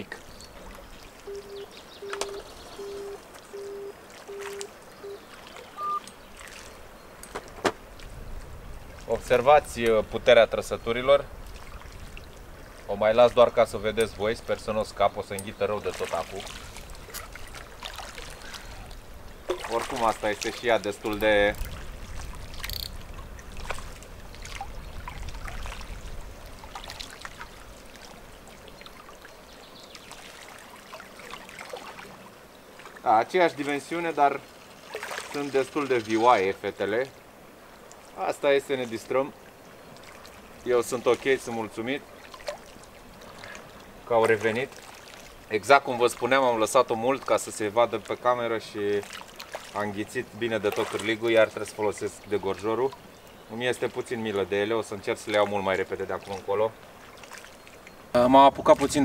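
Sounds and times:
faint running water: 0.0s - 59.0s
electronic bite alarm beeping: 1.3s - 5.2s, 5.8s - 6.1s
sharp clicks: 2.0s - 2.4s.

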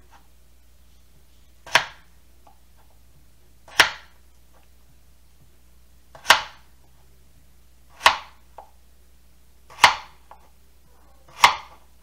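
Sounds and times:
knife chopping on plastic board: 1.6s - 2.9s, 3.6s - 4.2s, 6.1s - 6.7s, 7.9s - 8.8s, 9.7s - 10.5s, 11.3s - 11.9s.

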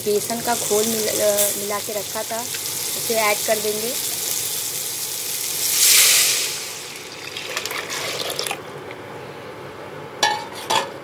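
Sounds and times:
batter sizzling in hot oil: 0.0s - 8.5s.

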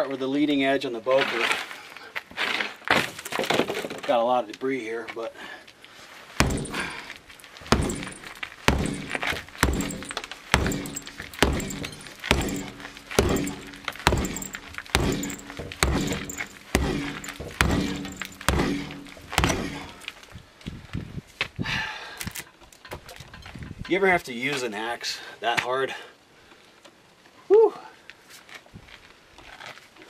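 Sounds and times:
hollow ring from door: 6.4s - 20.1s
tomahawk chopping into wooden door: 6.4s - 20.1s.

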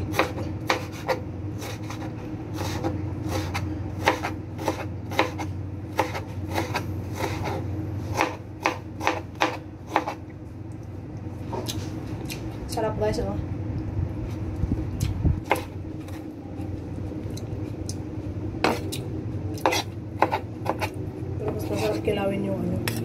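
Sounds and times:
steady low hum: 0.0s - 23.0s
knife chopping on cutting board: 0.1s - 10.2s, 19.6s - 20.9s.

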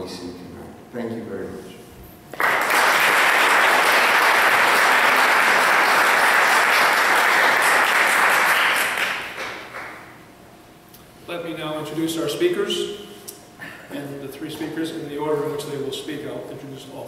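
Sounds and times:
audience applauding: 2.3s - 10.1s.

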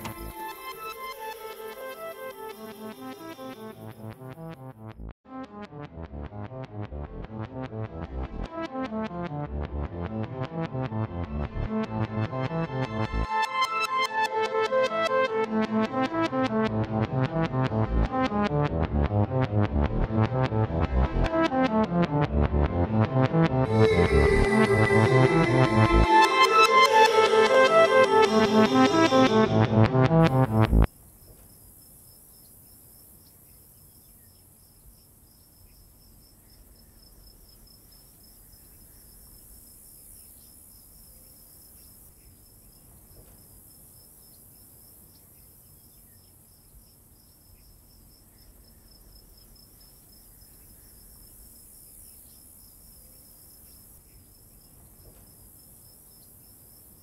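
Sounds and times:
crickets chirping: 0.0s - 4.1s, 30.9s - 57.0s.

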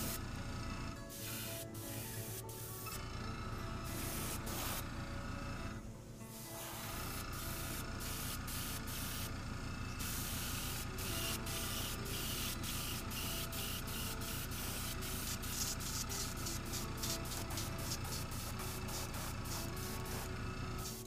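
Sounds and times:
steady low hum: 0.0s - 21.0s
airbrush spraying hiss: 1.1s - 2.8s, 3.9s - 4.8s, 6.3s - 9.3s, 10.0s - 21.0s.

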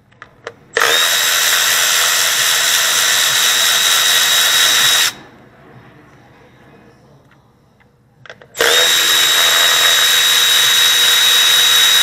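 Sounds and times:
electric ratchet running: 0.8s - 5.2s, 8.6s - 12.0s.

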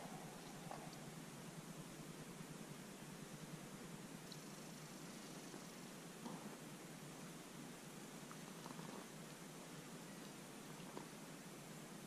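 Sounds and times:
faint steady hiss: 0.0s - 12.0s.

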